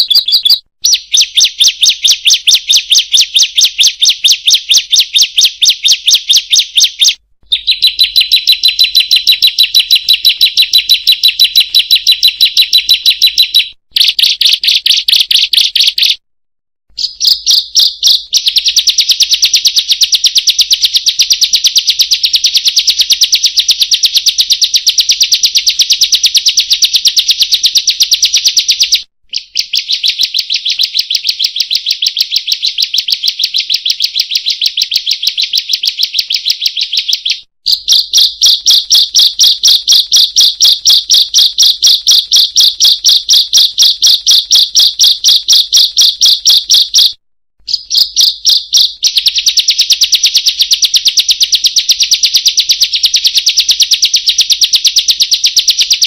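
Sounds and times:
bird calling high sharp notes: 0.0s - 16.2s, 29.3s - 49.5s.

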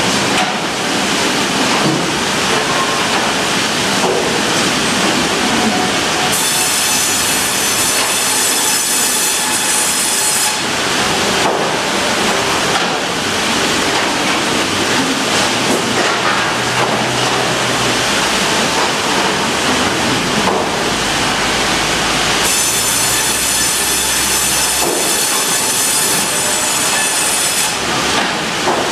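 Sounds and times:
bandsaw sawing log: 6.3s - 10.7s, 22.4s - 28.4s.

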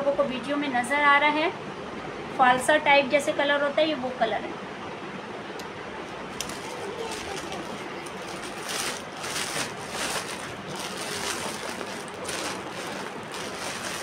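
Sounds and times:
plastic packaging crinkling: 6.3s - 14.0s.

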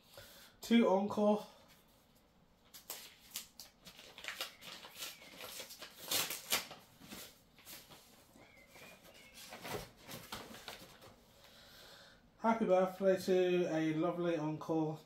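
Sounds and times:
paper rustling and crackling: 1.7s - 11.2s.

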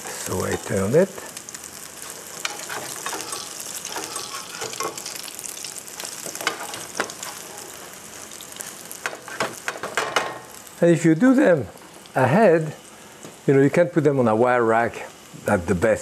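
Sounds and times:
pancakes sizzling in oil: 0.0s - 13.5s
metal spatula scraping pan: 2.5s - 5.1s.

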